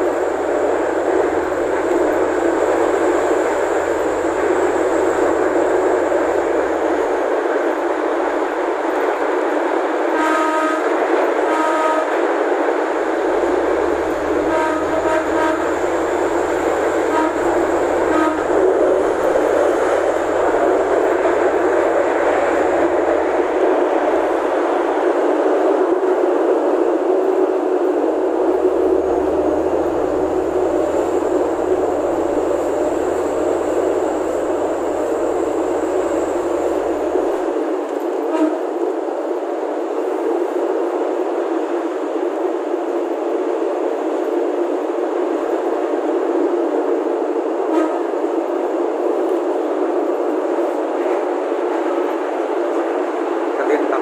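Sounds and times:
low hum: 0.0 - 7.3, 13.0 - 25.0, 27.8 - 38.1
train running on track: 0.0 - 54.0.

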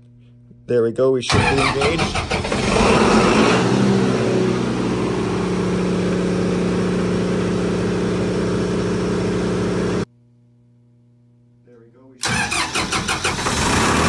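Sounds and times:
diesel generator engine running: 1.3 - 10.1.

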